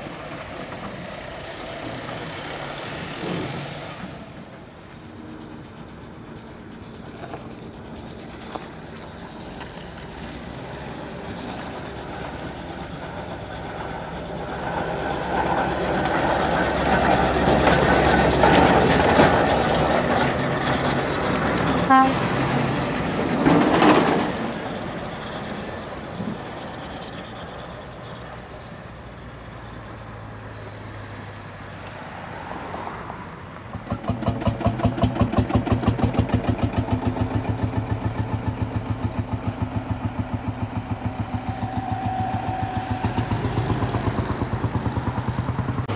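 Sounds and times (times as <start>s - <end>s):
steam traction engine passing: 0.0s - 45.9s
steam engine toot: 21.7s - 22.6s, 41.0s - 44.4s
tractor engine rapid beat: 33.7s - 45.9s.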